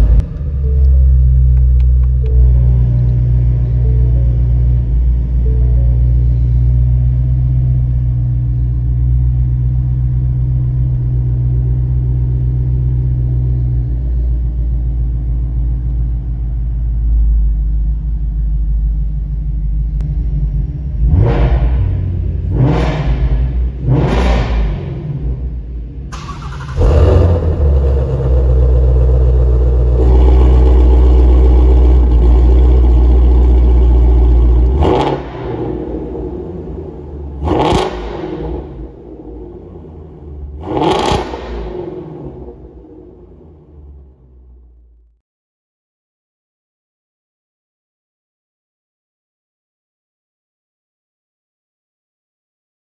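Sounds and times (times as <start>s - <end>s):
car engine idling and revving: 0.0s - 45.2s.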